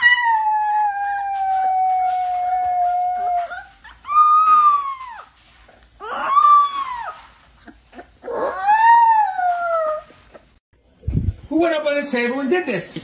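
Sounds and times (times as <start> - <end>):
puppy howling: 0.0 - 5.3, 6.0 - 10.1.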